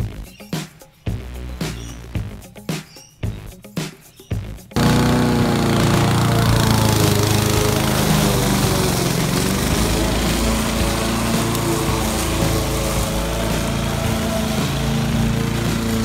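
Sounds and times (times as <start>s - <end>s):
lawn mower engine cutting grass: 4.8s - 16.0s.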